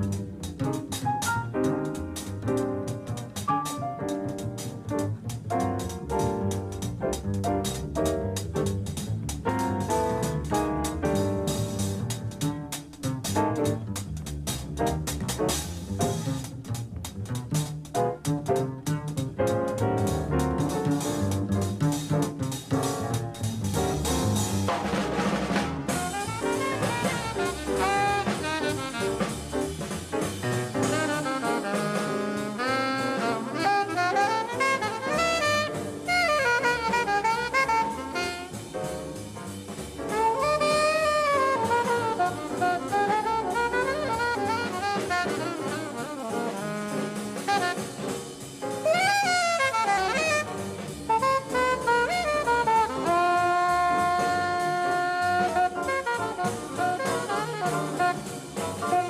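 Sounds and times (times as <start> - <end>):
drum kit: 0.0 - 59.0
saxophone solo: 25.8 - 39.2, 40.1 - 59.0.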